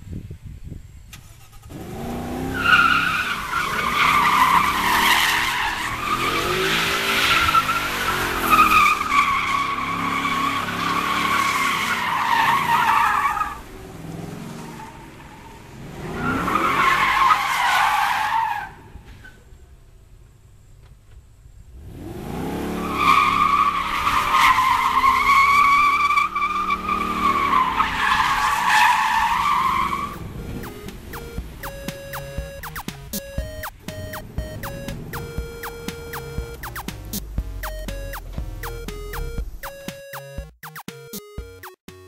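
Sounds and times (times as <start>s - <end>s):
car engine revving: 1.2s - 11.5s, 29.2s - 39.6s.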